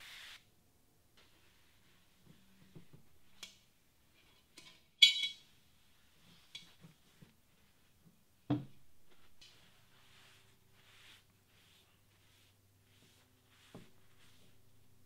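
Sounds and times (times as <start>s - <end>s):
ringing metallic clink: 5.0s - 5.4s.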